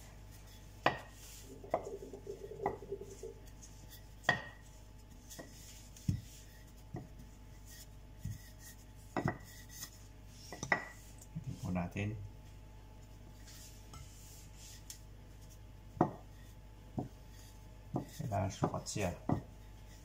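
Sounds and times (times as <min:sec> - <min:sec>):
rolling pin rolling dough: 0:00.1 - 0:11.8, 0:13.3 - 0:20.0.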